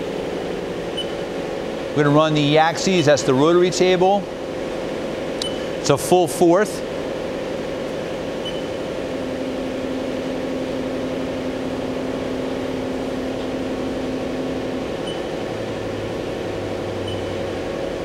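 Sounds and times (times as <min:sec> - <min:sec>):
low hum: 0:00.0 - 0:18.0
machine running hum: 0:00.0 - 0:18.0
rotary table motor whine: 0:06.9 - 0:18.0.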